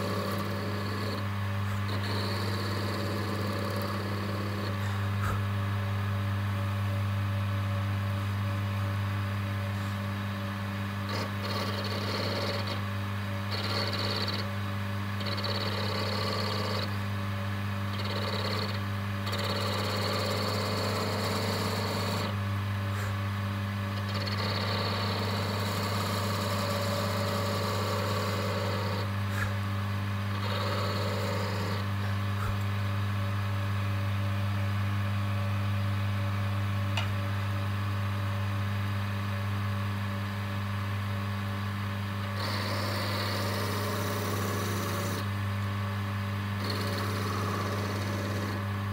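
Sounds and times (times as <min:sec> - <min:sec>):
wood lathe humming: 0:00.0 - 0:05.4, 0:11.1 - 0:12.8, 0:13.5 - 0:14.5, 0:17.9 - 0:22.4, 0:24.0 - 0:29.6, 0:30.3 - 0:32.8, 0:42.2 - 0:45.3, 0:46.6 - 0:48.7.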